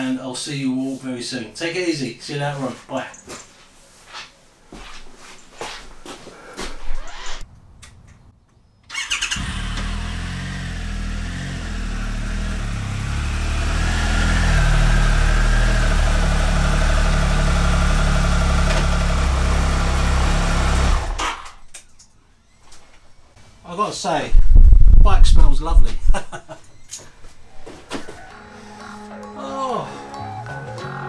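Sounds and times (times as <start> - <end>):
motorcycle engine starting and idling: 8.9 - 21.5.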